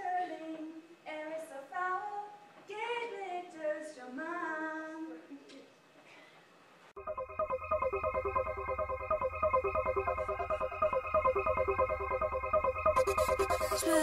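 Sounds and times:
woman singing unaccompanied: 0:13.0 - 0:14.0.

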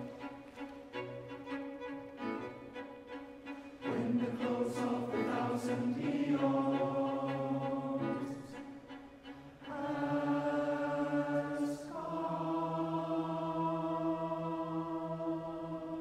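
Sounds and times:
large choir singing chords: 0:03.7 - 0:16.0.

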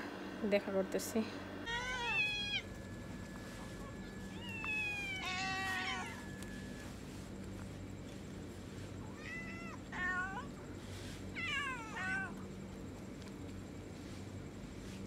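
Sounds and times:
steady low hum: 0:00.0 - 0:15.0
cats meowing: 0:01.7 - 0:02.8, 0:03.5 - 0:07.0, 0:08.9 - 0:10.6, 0:11.3 - 0:12.6.

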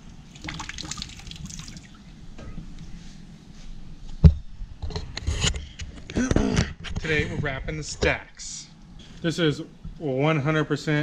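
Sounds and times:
water dripping and trickling: 0:00.0 - 0:02.1.

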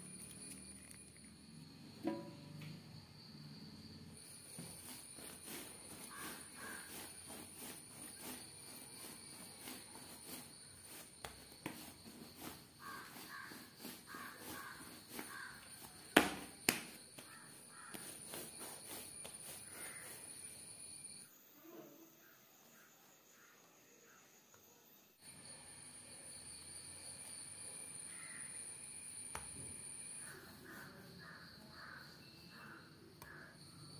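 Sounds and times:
hands patting dough: 0:04.5 - 0:20.2.

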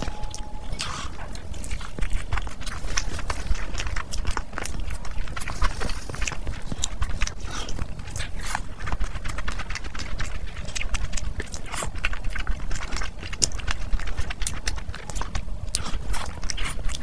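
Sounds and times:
person chewing: 0:00.0 - 0:17.0.

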